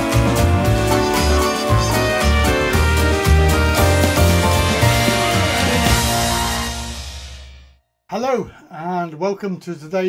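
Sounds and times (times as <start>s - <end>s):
intro music: 0.0s - 7.8s.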